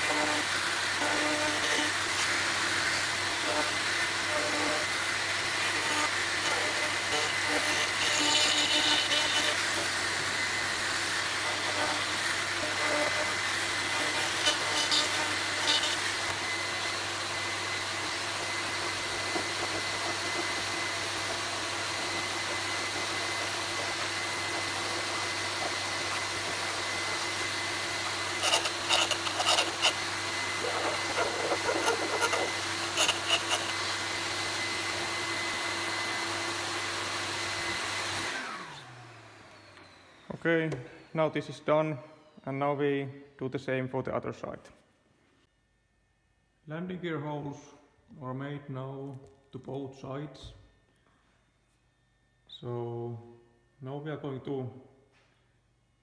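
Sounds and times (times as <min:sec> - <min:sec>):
vacuum cleaner whining: 0:00.0 - 0:42.8
needle file rasping: 0:19.0 - 0:33.9.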